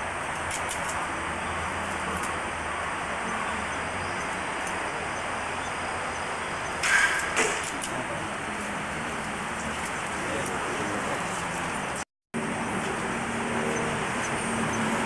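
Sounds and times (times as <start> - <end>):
arrow striking target: 6.8 - 7.8.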